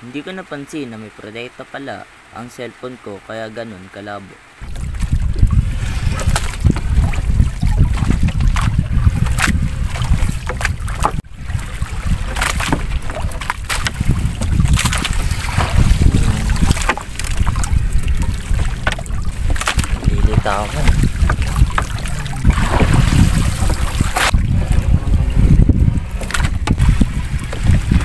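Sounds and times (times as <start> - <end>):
wet net and water splashing: 4.6 - 28.0
wind rumble on microphone: 4.6 - 28.0.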